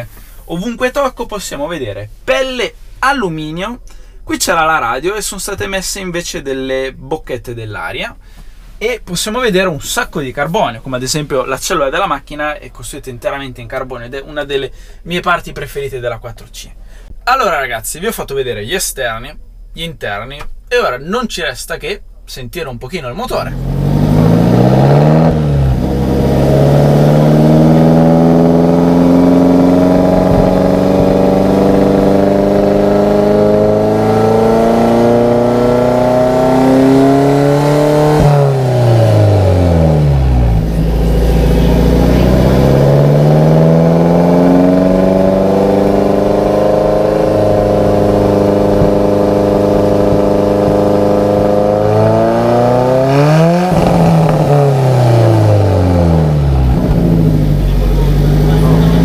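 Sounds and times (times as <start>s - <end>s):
car engine revving: 23.3s - 59.0s.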